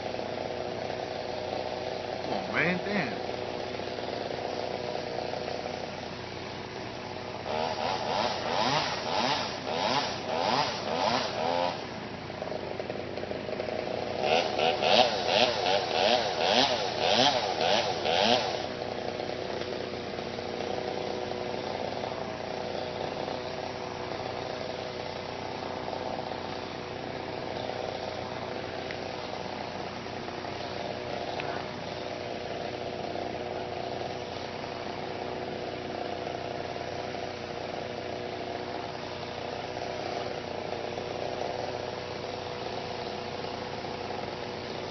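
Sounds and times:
chainsaw engine drone: 0:00.0 - 0:44.9
chainsaw revving in pulses: 0:00.0 - 0:44.9.

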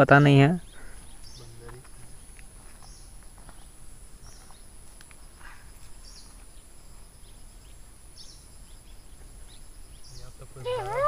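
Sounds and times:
short high bird calls: 0:10.2 - 0:11.0.

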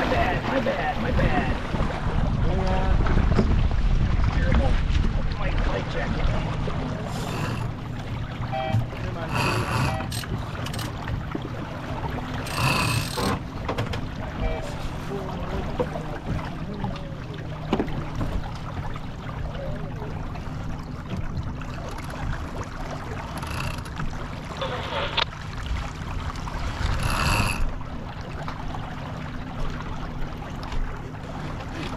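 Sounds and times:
water rushing along hull: 0:00.0 - 0:31.9
wind rumbling on microphone: 0:01.0 - 0:15.1.

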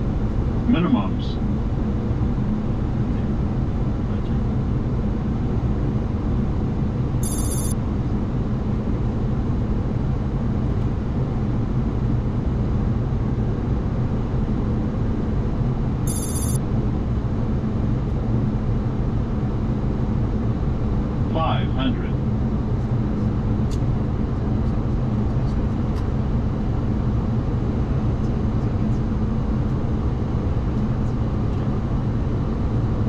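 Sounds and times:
airflow and engine noise: 0:00.0 - 0:33.0
high-pitched electronic chirps: 0:07.2 - 0:07.8, 0:16.1 - 0:16.6.

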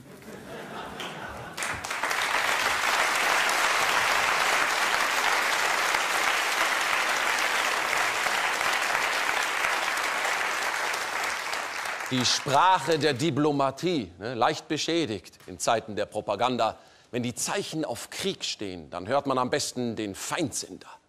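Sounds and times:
audience applause: 0:00.7 - 0:13.0.

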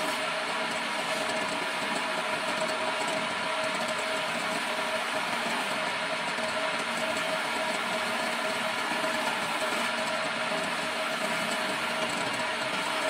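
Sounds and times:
chisel scraping spinning wood: 0:00.0 - 0:13.0
electric motor hum: 0:00.0 - 0:13.0.

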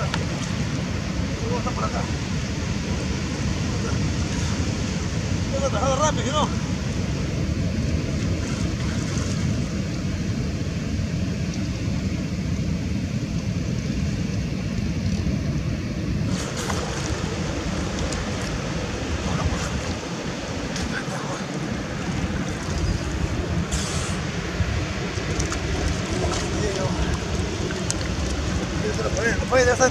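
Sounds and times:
wind buffeting microphone: 0:00.0 - 0:29.9
faint splashes: 0:16.3 - 0:29.7
higher hiss: 0:23.6 - 0:24.4.

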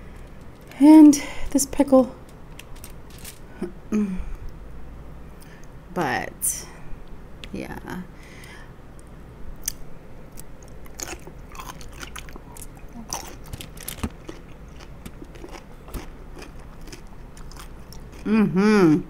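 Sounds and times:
person chewing food: 0:09.6 - 0:18.4.

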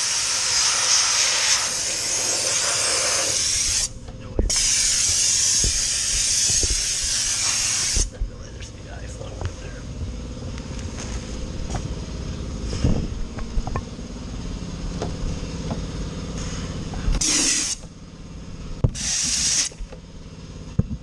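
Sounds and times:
compressed air hisses: 0:00.0 - 0:03.9, 0:04.5 - 0:08.1, 0:16.4 - 0:17.8, 0:19.0 - 0:19.8.

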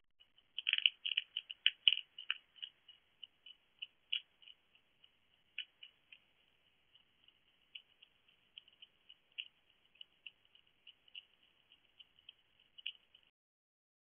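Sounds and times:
hedgehog crunching dry food: 0:00.2 - 0:13.3.

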